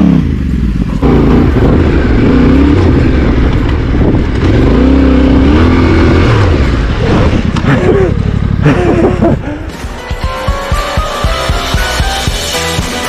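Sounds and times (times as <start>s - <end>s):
motorcycle engine revving hard: 0.0s - 9.4s.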